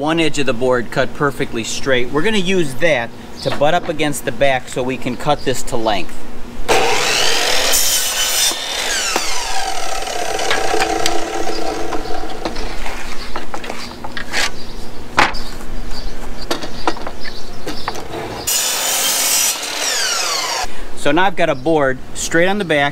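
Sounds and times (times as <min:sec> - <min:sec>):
board knocking on saw: 0:06.7 - 0:12.9
saw blade winding down: 0:06.7 - 0:13.0, 0:18.4 - 0:20.7
miter saw cutting wood: 0:06.7 - 0:13.2, 0:18.1 - 0:20.7.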